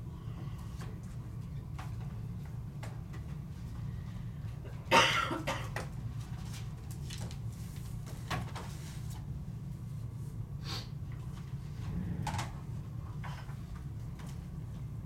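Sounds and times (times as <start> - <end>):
steady low hum: 0.0 - 15.0
papers rustling: 6.2 - 9.2.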